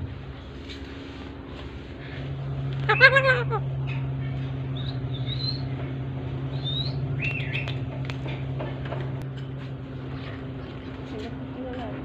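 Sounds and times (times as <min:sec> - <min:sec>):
steady low hum: 0:00.0 - 0:12.0
parakeet chirping and whistling: 0:02.9 - 0:03.6, 0:04.7 - 0:05.8, 0:06.5 - 0:07.8.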